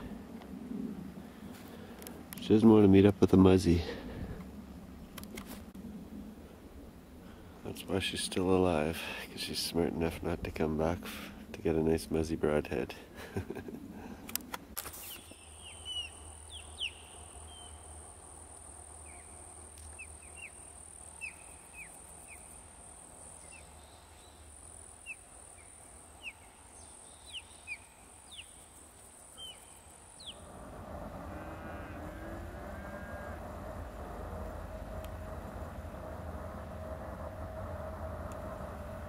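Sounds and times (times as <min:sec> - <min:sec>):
bird chirping: 0:15.0 - 0:18.0, 0:19.0 - 0:22.6, 0:23.2 - 0:30.7
steady rushing noise: 0:29.5 - 0:39.0.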